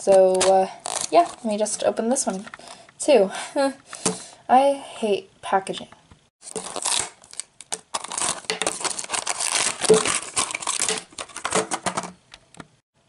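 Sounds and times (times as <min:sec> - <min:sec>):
plastic wrapper crinkling: 0:00.0 - 0:02.5, 0:06.4 - 0:12.3.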